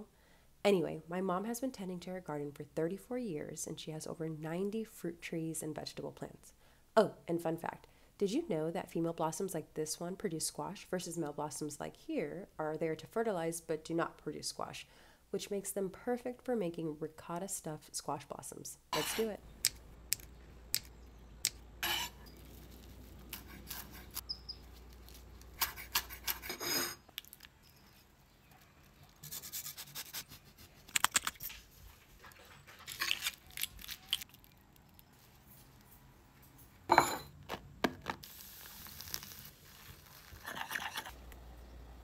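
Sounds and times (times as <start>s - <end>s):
utensil scraping in a bowl: 19.0s - 19.4s, 21.8s - 22.6s.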